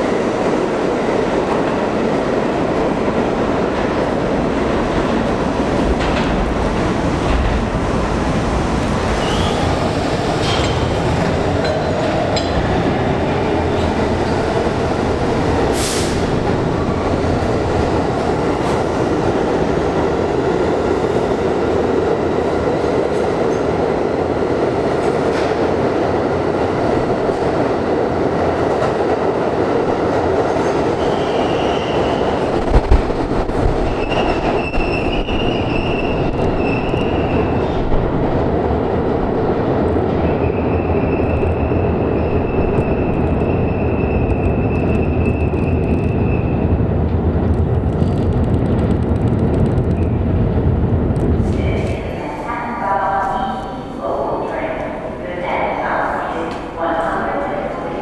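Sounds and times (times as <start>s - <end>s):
subway train rumbling: 0.0s - 58.0s
train wheels squealing: 9.2s - 9.8s, 31.0s - 32.4s, 33.9s - 37.7s.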